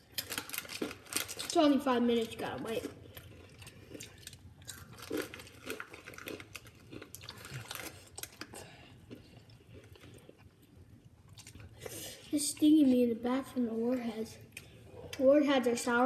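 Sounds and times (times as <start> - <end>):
person chewing crunchy food: 0.0 - 1.6, 2.6 - 12.0.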